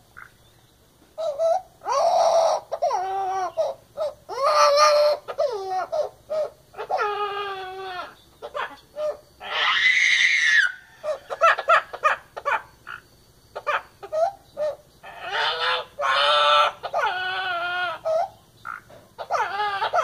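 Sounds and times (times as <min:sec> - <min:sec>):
parrot wavering wails: 0:01.2 - 0:12.6, 0:13.6 - 0:18.4, 0:19.2 - 0:20.0
parrot harsh call: 0:01.2 - 0:13.0, 0:13.6 - 0:20.0.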